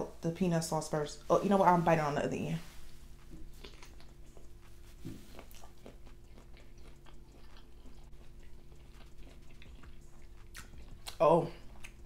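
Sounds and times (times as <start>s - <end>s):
person chewing with wet mouth clicks: 3.1s - 12.0s.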